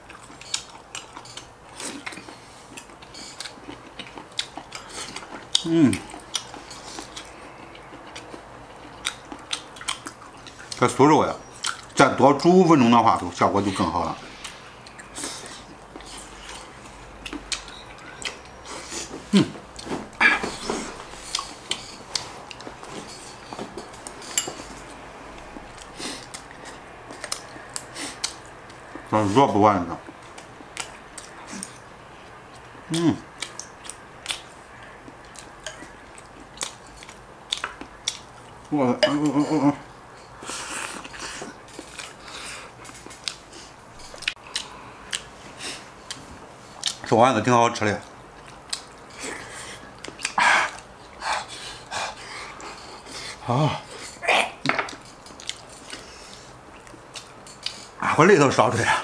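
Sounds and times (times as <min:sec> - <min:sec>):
chewing with clicks and smacks: 0:00.0 - 0:12.5, 0:14.4 - 0:29.1, 0:29.9 - 0:39.3, 0:40.3 - 0:47.1, 0:47.9 - 0:58.1
utensils clinking against bowls: 0:20.2 - 0:24.9.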